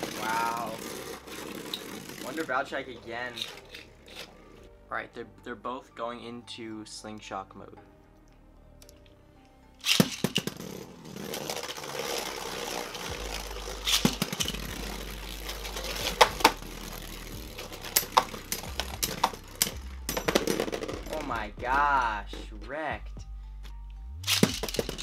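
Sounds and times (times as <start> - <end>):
spinning tops launched: 0.0 - 2.6, 9.8 - 21.4, 24.2 - 25.0
spinning tops whirring: 0.0 - 4.4, 9.8 - 21.4, 24.2 - 25.0
spinning tops clashing clicks: 9.8 - 13.1, 13.8 - 21.4, 24.2 - 25.0.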